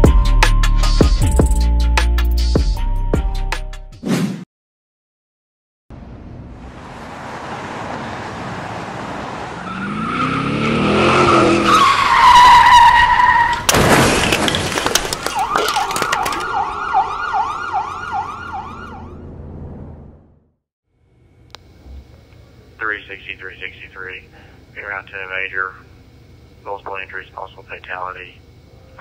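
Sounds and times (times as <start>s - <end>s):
car engine revving: 6.0s - 12.6s
tyres screeching: 9.4s - 16.5s
falling debris clattering: 13.4s - 16.6s
loud crash: 13.5s - 16.6s
fast warbling siren: 15.3s - 19.4s.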